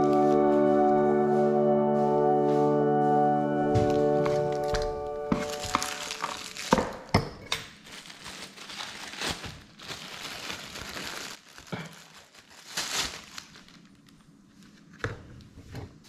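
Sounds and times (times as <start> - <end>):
plastic bag crinkling: 3.9 - 14.9.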